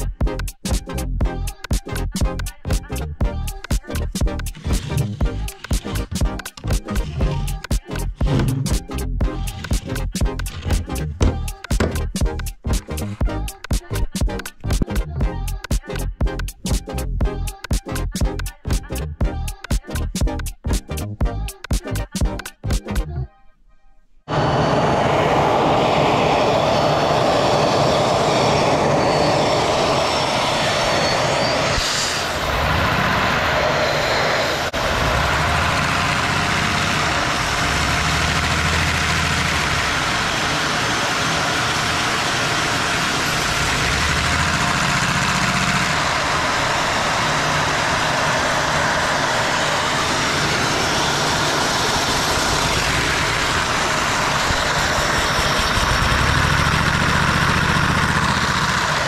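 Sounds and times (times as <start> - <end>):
toy vacuum engine running: 3.4 - 8.8, 34.1 - 59.0
vacuum cleaners running: 24.3 - 59.0.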